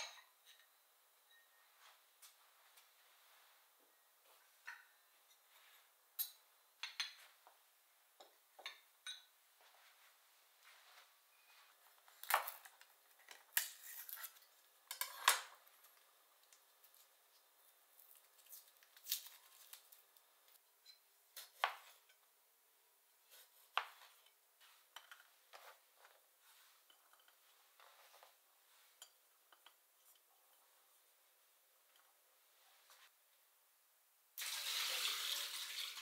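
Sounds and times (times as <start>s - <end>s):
utensils and cookware clinking: 0.0s - 1.5s, 12.3s - 15.6s.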